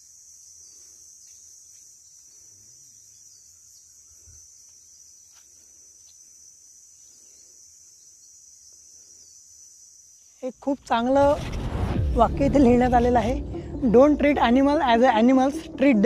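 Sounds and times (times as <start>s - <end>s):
forest insects chorus: 0.0s - 10.8s.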